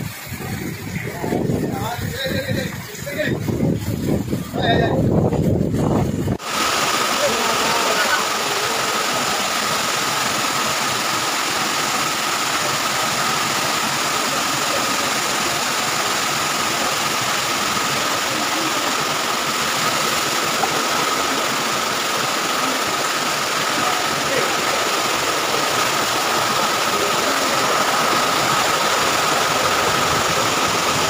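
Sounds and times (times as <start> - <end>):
floodwater rushing: 0.0 - 31.0.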